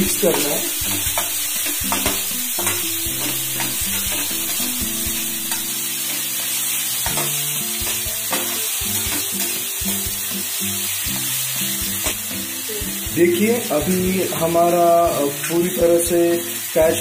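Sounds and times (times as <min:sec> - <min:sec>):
spatula scraping and knocking pan: 0:00.0 - 0:10.1
onions sizzling in oil: 0:00.0 - 0:17.0.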